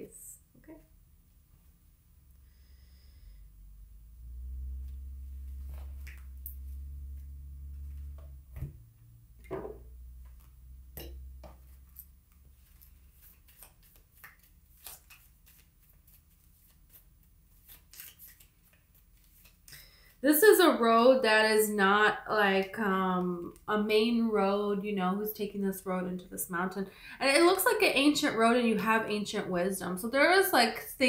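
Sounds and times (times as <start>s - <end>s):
low rumble with hum: 0.0s - 17.8s
cards being shuffled: 11.4s - 19.8s.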